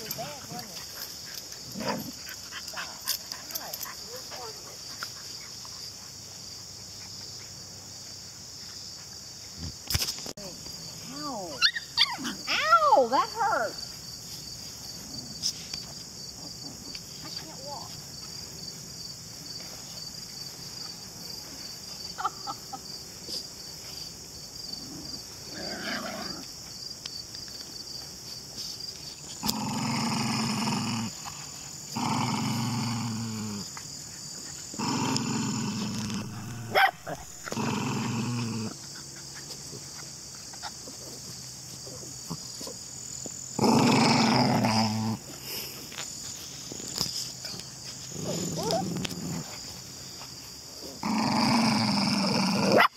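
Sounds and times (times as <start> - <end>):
crickets chirping: 0.0 - 52.9
dog growling: 29.4 - 33.7, 34.7 - 39.2, 43.6 - 45.3, 48.1 - 49.5, 51.0 - 52.9.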